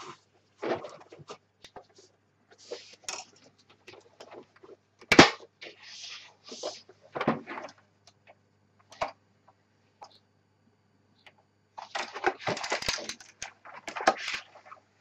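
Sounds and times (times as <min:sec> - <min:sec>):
clicks and rustles: 0:11.2 - 0:14.9.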